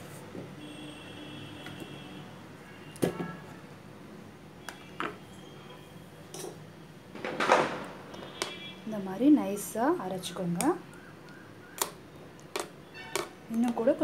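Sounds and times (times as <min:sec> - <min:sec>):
utensils clinking against steel bowl: 0:06.3 - 0:06.6.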